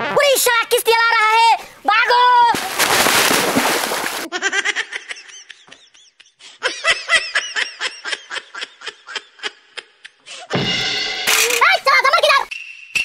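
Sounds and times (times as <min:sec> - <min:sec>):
person laughing: 0:04.2 - 0:10.3.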